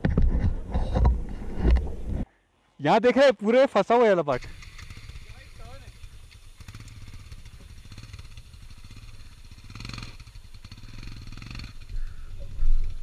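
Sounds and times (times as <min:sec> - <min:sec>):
motorcycle engine at low revs: 0:04.3 - 0:13.0.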